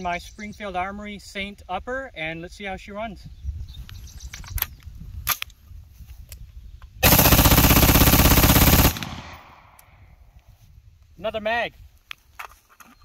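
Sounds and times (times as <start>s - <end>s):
rifle firing rapid shots: 7.0s - 9.8s
gunshot echo: 8.8s - 9.8s.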